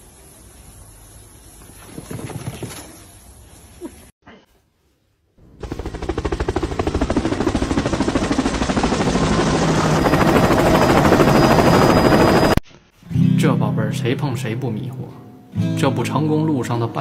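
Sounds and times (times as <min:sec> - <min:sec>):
helicopter rotor chopping: 0:05.4 - 0:12.6
turbine whine: 0:05.4 - 0:12.6.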